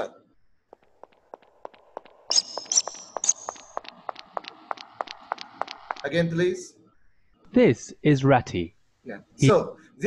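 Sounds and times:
fast light ticks: 1.7 - 6.1.

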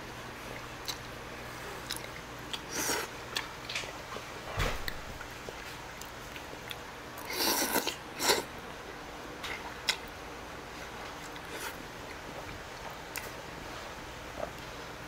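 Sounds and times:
chewing with faint clicks: 0.4 - 1.2, 1.8 - 8.4, 9.4 - 10.2, 11.0 - 13.4, 14.3 - 14.8
person slurping noodles: 7.2 - 8.5.

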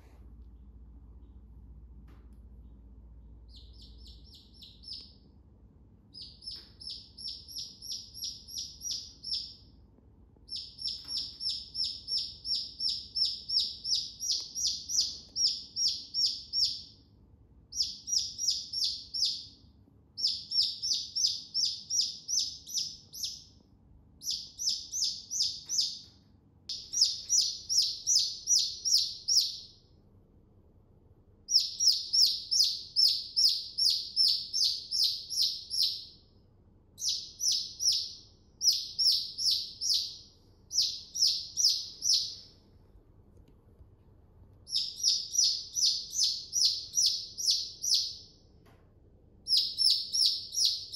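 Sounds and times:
chick peeping: 3.5 - 5.2, 6.1 - 9.6, 10.5 - 16.9, 26.7 - 29.6, 44.7 - 48.2, 49.5 - 50.9.

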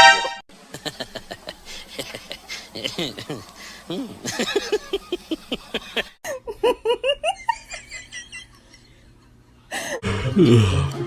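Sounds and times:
woman laughing: 0.8 - 10.0
music: 10.1 - 11.0.

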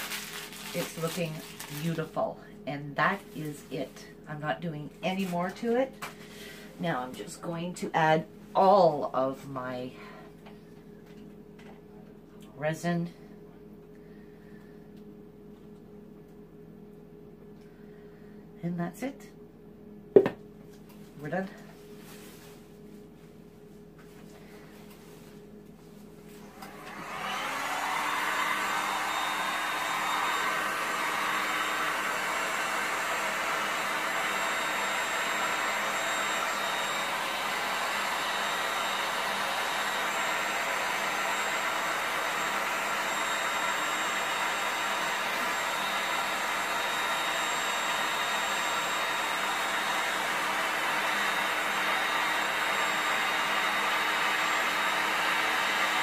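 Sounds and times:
heat gun fan whine: 0.0 - 11.8, 24.0 - 56.0.

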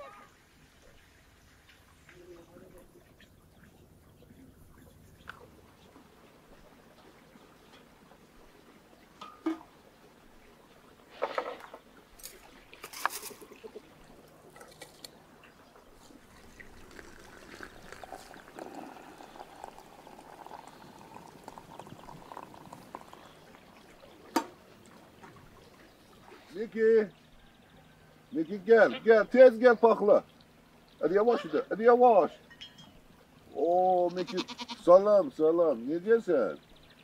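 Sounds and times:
water pouring into teapot: 12.2 - 26.5.

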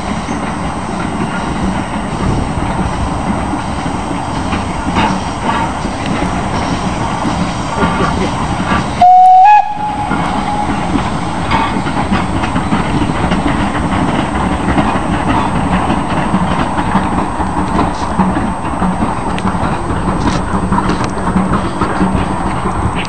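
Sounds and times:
train running past on track: 0.0 - 23.0
steam locomotive whistle blast: 9.0 - 11.4.

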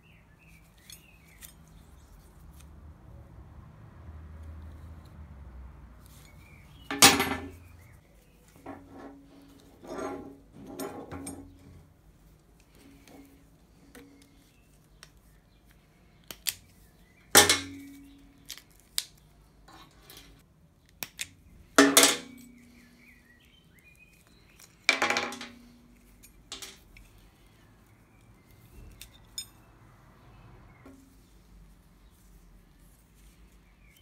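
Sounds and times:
metal tool clicks and knocks: 10.1 - 11.6, 17.4 - 18.1.

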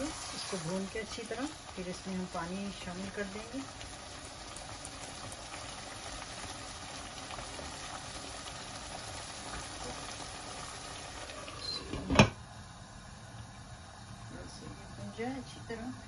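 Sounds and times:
food bubbling in a pot: 0.0 - 16.0.

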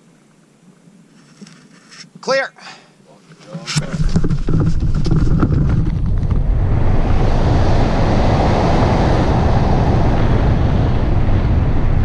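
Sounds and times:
wind rushing over microphone: 3.7 - 12.0.

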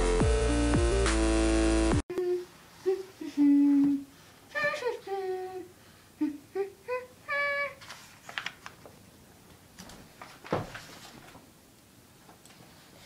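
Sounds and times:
child humming notes: 2.1 - 7.8.

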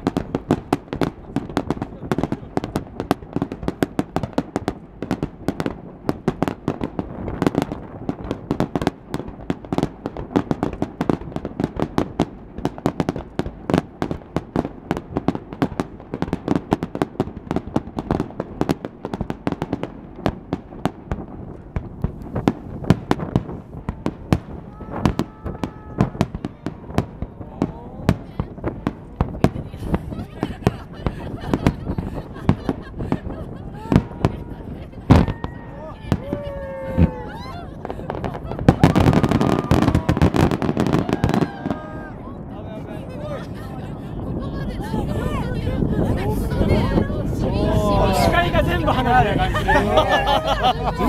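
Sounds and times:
firework shells bursting: 36.9 - 41.8.

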